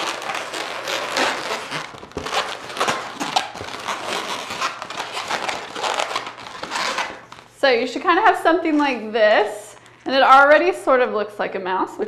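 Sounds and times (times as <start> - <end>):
balloons squeaking and rubbing: 0.0 - 7.6.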